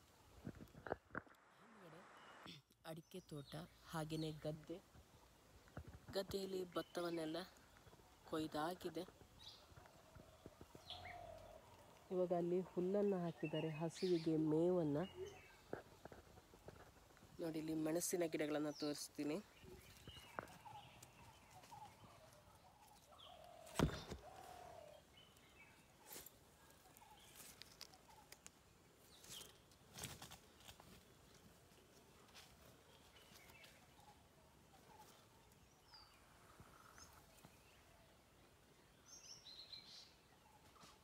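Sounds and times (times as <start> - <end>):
knocks and rustles among plants: 5.6 - 6.6, 15.6 - 17.4, 19.6 - 22.0, 22.9 - 24.8, 29.1 - 34.0.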